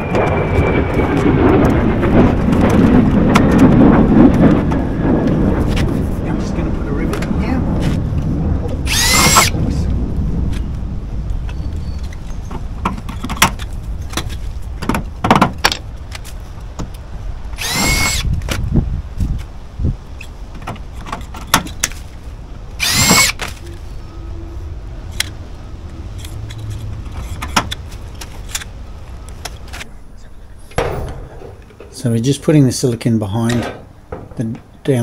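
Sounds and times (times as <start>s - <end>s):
cordless drill whining: 8.9s - 9.5s, 17.6s - 18.3s, 22.8s - 23.4s
tools clicking and knocking: 26.2s - 28.7s.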